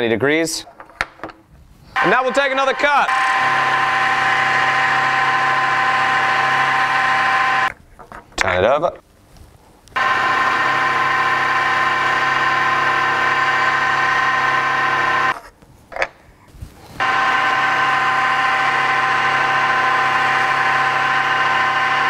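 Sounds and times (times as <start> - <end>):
milling machine whining: 2.0 - 7.7, 10.0 - 15.4, 17.0 - 22.0.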